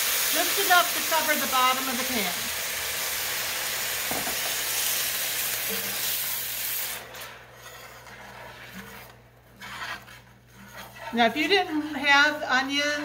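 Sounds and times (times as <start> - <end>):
water sizzling in hot skillet: 0.0 - 7.1.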